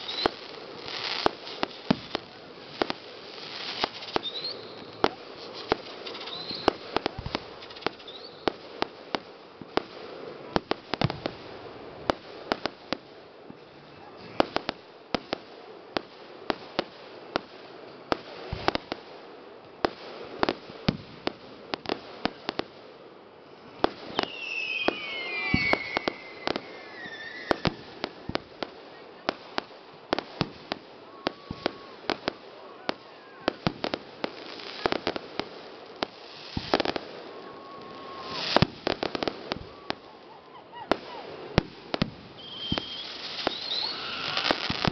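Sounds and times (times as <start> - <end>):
fireworks whistling down in pitch: 0.0 - 8.8, 23.7 - 35.2, 36.0 - 44.9
fireworks bangs and crackles: 0.0 - 44.9.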